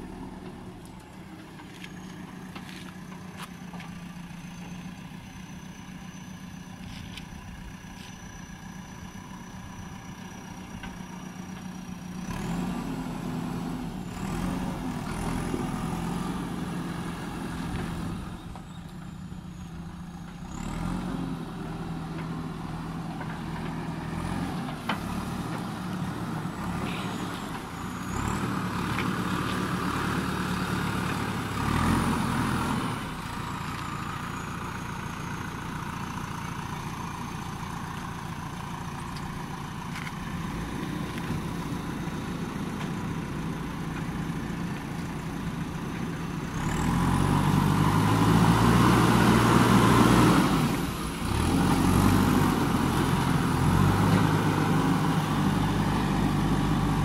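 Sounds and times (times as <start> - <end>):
backhoe diesel engine revving: 0.0 - 57.0
high engine whine: 0.0 - 57.0.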